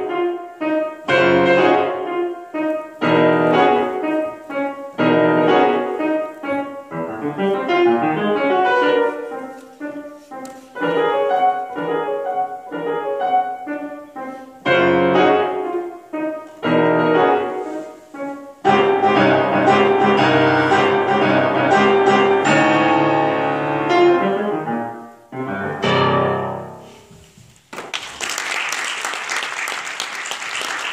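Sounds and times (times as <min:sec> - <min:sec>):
solo grand piano: 0:00.0 - 0:27.7
audience applause: 0:27.7 - 0:30.9.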